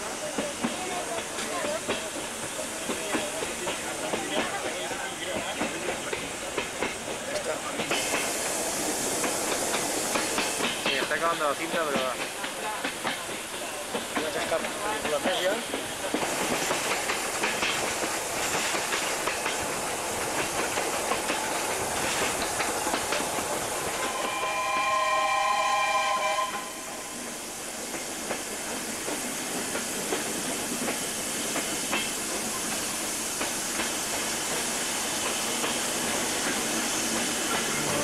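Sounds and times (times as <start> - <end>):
train wheels on track: 0.0 - 38.0
wind: 0.0 - 38.0
steam locomotive whistle: 24.0 - 27.4.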